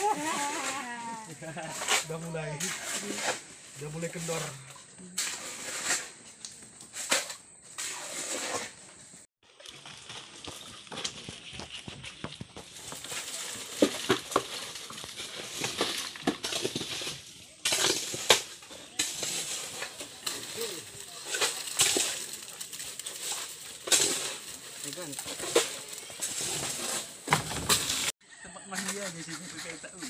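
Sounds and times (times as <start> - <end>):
shovel scraping wet concrete: 0.0 - 28.1
metal buckets clinking: 9.5 - 28.1.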